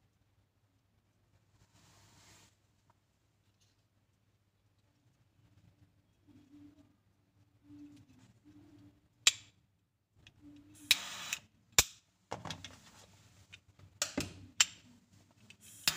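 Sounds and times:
lighter hiss: 10.8s - 11.4s, 15.6s - 15.9s.

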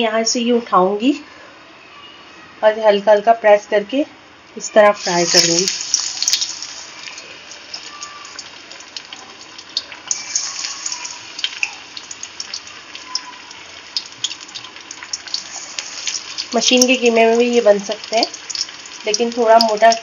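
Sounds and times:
patties sizzling in hot oil: 4.5s - 20.0s.

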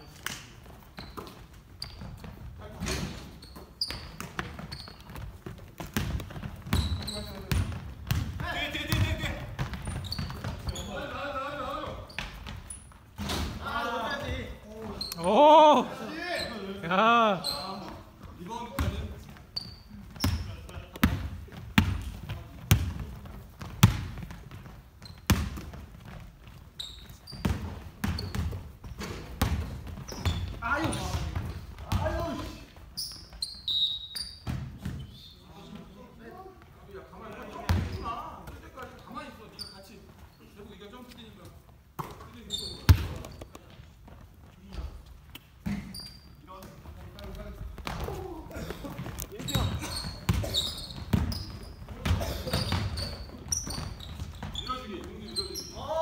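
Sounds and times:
sneaker squeaks: 0.0s - 56.0s
basketball bouncing on hardwood: 3.9s - 10.7s, 20.2s - 26.5s, 27.3s - 32.3s, 49.0s - 54.6s
basketball thuds: 3.9s - 10.7s.

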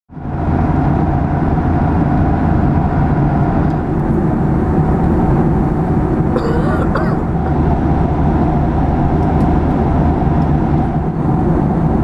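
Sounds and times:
jet engine and air roar: 0.1s - 12.0s.

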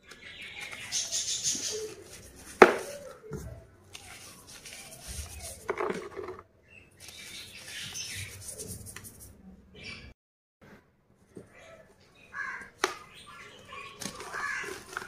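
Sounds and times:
cloth rubbing chalk: 1.3s - 3.1s, 3.9s - 5.8s, 7.0s - 9.4s.

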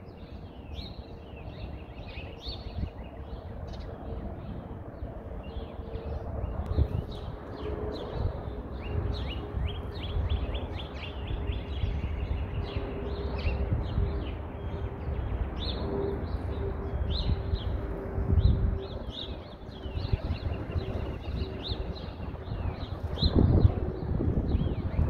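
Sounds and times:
songbirds chirping and singing: 0.0s - 25.0s.

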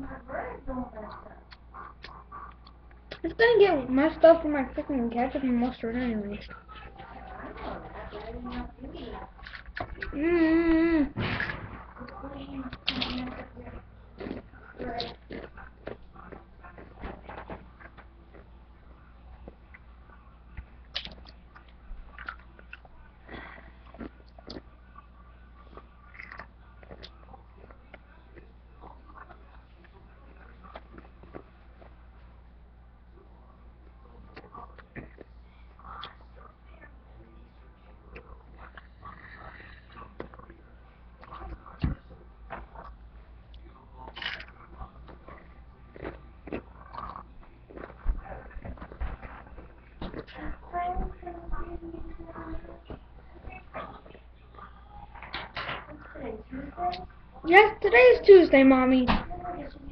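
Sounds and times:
person chewing food: 1.0s - 3.3s, 9.4s - 10.7s, 11.8s - 32.0s, 33.8s - 51.2s.

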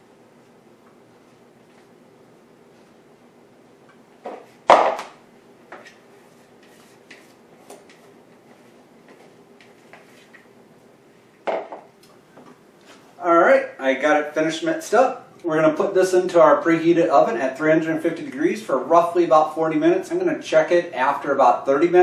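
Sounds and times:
utensil scraping a bowl: 5.8s - 8.1s.

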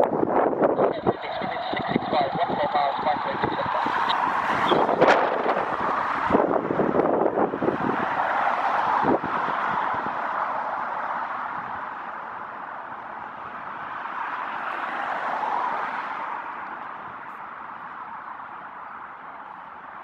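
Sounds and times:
jet engines rushing: 0.6s - 10.4s.

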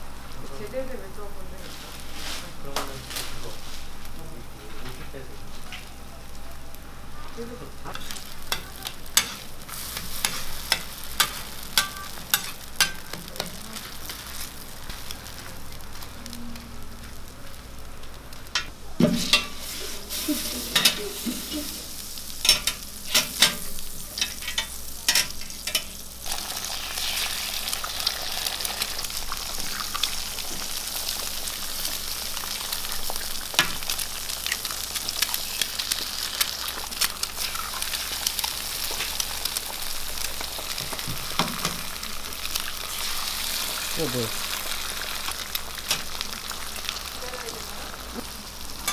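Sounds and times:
burger patties sizzling on griddle: 0.0s - 48.9s
eggs frying: 0.0s - 48.9s.

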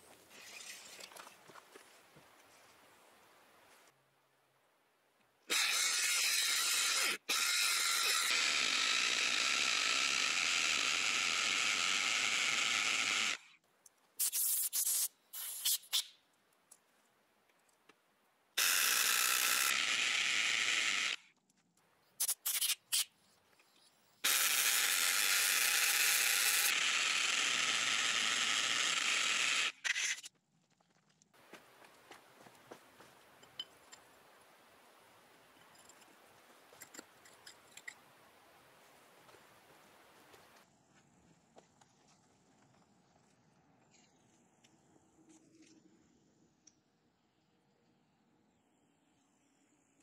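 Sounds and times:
hammer drill boring into concrete: 5.5s - 13.5s, 18.6s - 21.3s, 24.2s - 30.3s.

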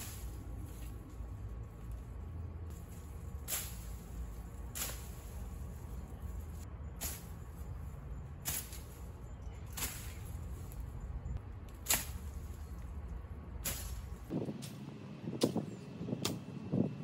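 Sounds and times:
machete chopping vines: 2.8s - 5.7s, 8.4s - 9.1s, 9.7s - 10.6s, 11.6s - 12.8s, 13.6s - 14.8s.

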